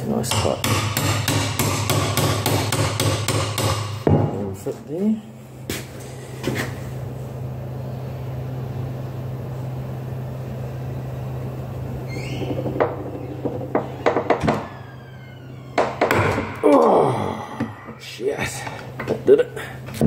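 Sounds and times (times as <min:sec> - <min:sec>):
steady low hum: 0:00.0 - 0:20.0
short rising squeak: 0:12.1 - 0:15.8.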